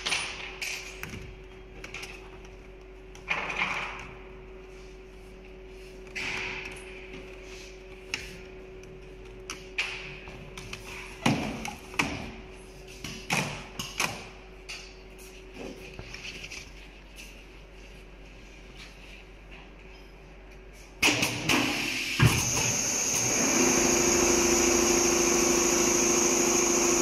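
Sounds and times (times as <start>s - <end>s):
steady machine hum: 21.5s - 27.0s.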